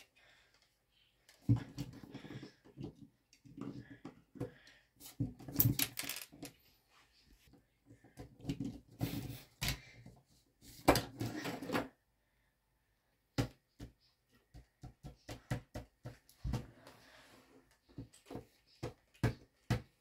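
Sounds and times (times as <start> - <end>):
plastic bricks clicking and knocking: 5.4 - 6.6.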